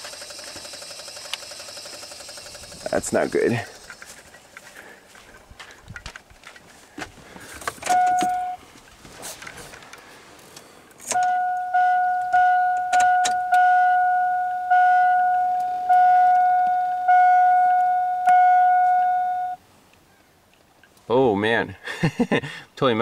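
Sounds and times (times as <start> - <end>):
sharp clicks: 0.0 - 4.3
dashboard warning chime: 7.8 - 8.6, 11.1 - 19.6.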